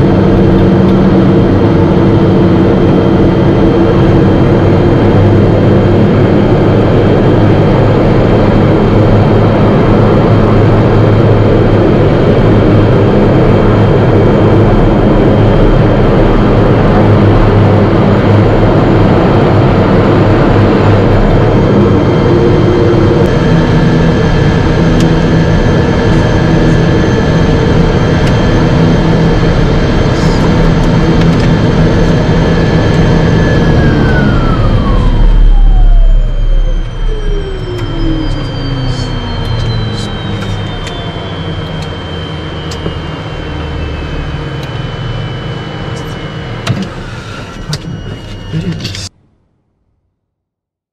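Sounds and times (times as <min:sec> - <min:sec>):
propeller aircraft engine whining: 0:00.0 - 0:49.2.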